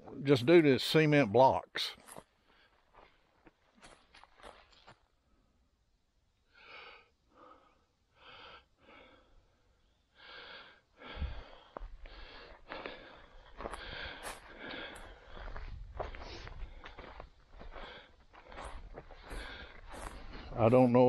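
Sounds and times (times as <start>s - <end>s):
person breathing: 2.4s - 3.3s, 6.4s - 20.5s
footsteps thumping: 13.6s - 20.8s.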